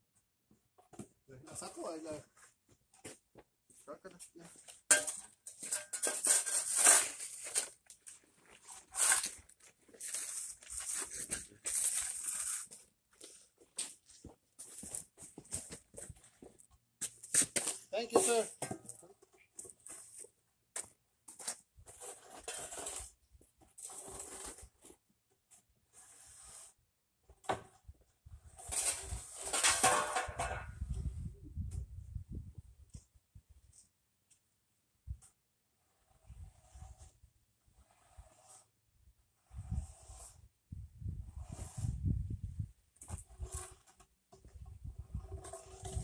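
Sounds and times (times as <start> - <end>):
shovel scraping sand: 4.7 - 14.0, 21.3 - 25.0, 25.8 - 26.8, 28.4 - 30.6, 35.7 - 46.0
paver block grinding in sand: 4.8 - 12.9, 21.3 - 25.0, 25.8 - 26.8, 28.4 - 30.9, 35.6 - 46.0.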